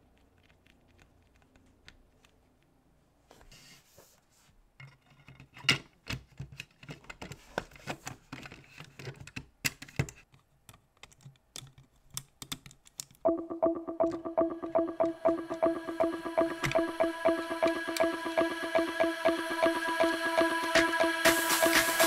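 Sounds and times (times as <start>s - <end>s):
model car parts clicking: 0.0s - 2.7s, 5.3s - 13.2s
music with steady beat: 13.3s - 22.0s.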